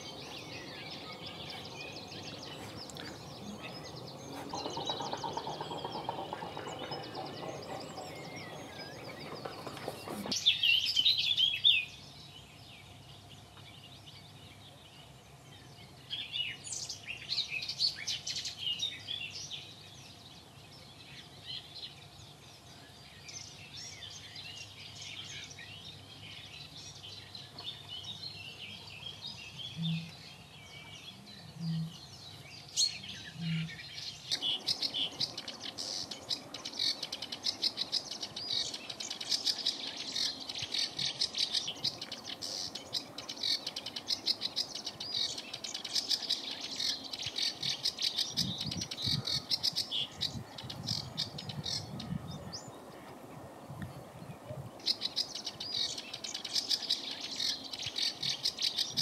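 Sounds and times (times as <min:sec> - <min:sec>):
fast clicking bird chatter: 0:00.0 - 0:10.4, 0:34.3 - 0:51.8
small birds chirping: 0:00.0 - 0:59.0.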